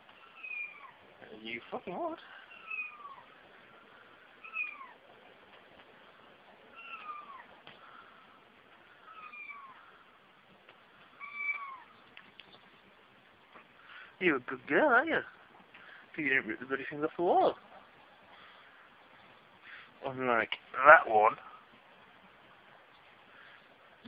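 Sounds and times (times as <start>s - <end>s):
kitten meowing: 0.3s - 1.0s, 2.5s - 3.3s, 4.4s - 5.0s, 6.7s - 7.5s, 9.1s - 9.8s, 11.2s - 12.0s.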